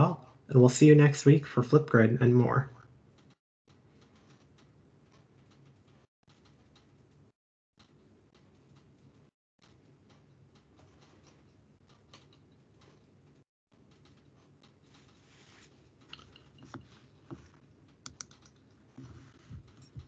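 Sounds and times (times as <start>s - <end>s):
faint room hum: 0.0s - 20.0s
computer keyboard typing: 16.0s - 20.0s.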